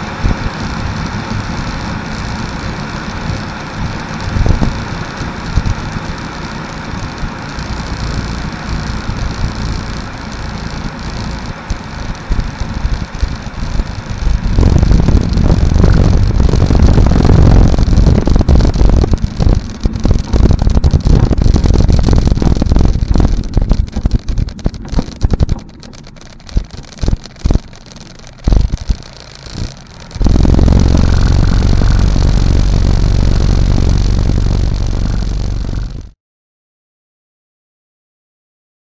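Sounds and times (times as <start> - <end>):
wind buffeting microphone: 0.0 - 36.1
aircraft engine at low power: 0.0 - 36.2
wheels rumbling on runway: 0.0 - 36.2
thumps: 9.0 - 36.1
air rushing past: 12.2 - 26.7, 30.1 - 36.1.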